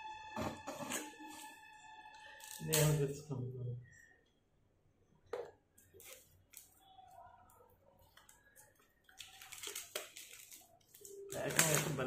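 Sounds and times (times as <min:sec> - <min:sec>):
cardboard packaging rustling: 0:09.0 - 0:12.0.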